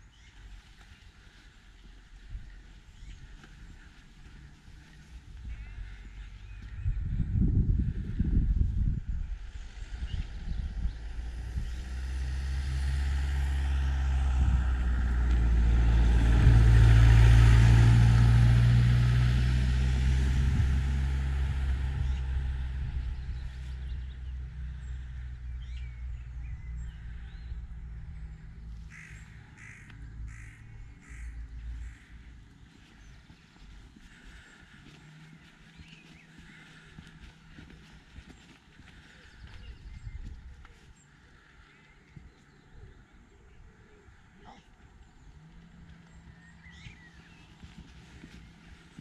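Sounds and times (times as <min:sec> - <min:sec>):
vehicle engine drone passing: 0:00.0 - 0:49.0
crow cawing: 0:05.5 - 0:06.3, 0:28.9 - 0:32.2.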